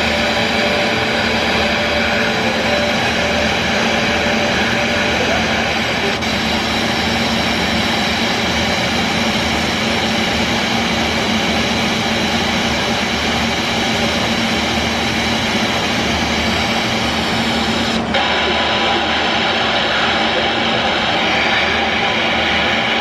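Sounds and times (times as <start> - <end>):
loud radio static hiss: 0.0 - 10.1, 15.0 - 23.0
steady low hum: 0.0 - 23.0.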